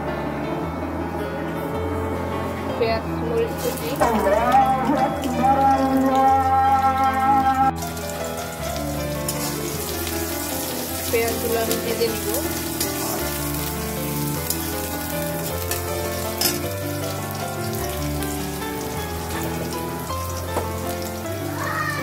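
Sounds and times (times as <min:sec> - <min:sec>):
soft background music: 0:00.0 - 0:22.0
onions sizzling in hot oil: 0:03.5 - 0:04.3, 0:07.7 - 0:22.0.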